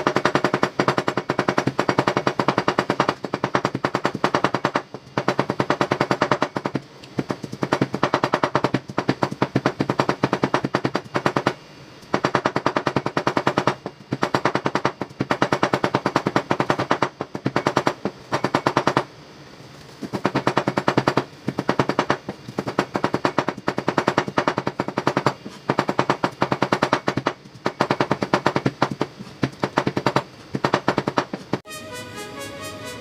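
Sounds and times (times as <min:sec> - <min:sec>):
music: 0:31.7 - 0:33.0.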